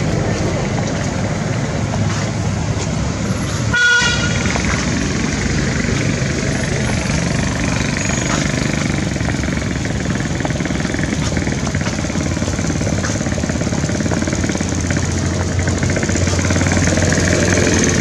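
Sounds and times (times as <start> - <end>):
traffic rumble: 0.0 - 18.0
high-pitched horn toot: 3.7 - 4.4.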